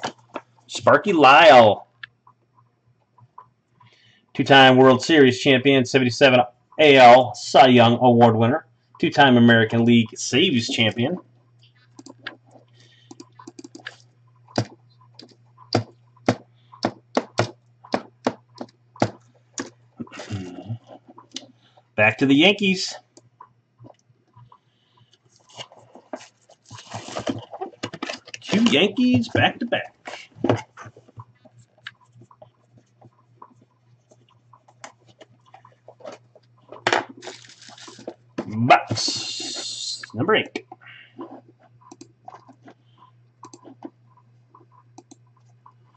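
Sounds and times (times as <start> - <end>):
low electrical hum: 0.0 - 45.9
computer keyboard keys clicking: 13.1 - 15.9.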